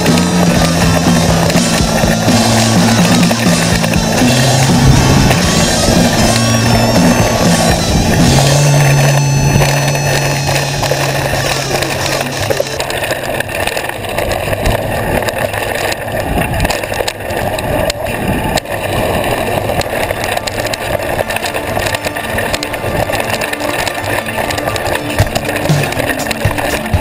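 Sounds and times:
bike clattering over bumps: 0.0 - 27.0
bike tyres on gravel: 0.0 - 27.0
wind noise: 0.0 - 27.0.

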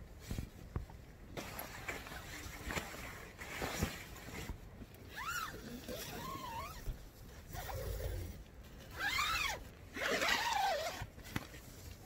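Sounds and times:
tent zipper pulled open: 5.1 - 11.3.

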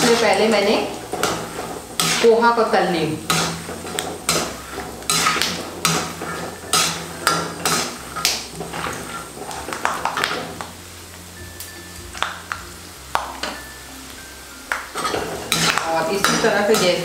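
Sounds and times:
metal spoon scraping a pan: 0.0 - 10.6, 14.9 - 17.0.

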